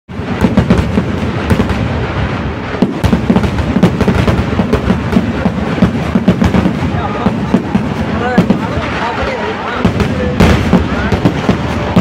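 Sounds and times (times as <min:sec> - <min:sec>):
continuous rumble: 0:00.1 - 0:12.0
firecracker bangs: 0:00.1 - 0:12.0.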